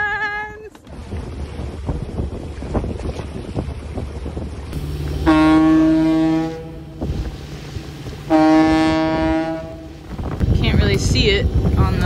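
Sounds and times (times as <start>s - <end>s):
rumble of wind and water: 0.0s - 12.0s
foghorn blasts: 4.8s - 11.1s
deep steady horn tone: 4.8s - 11.2s.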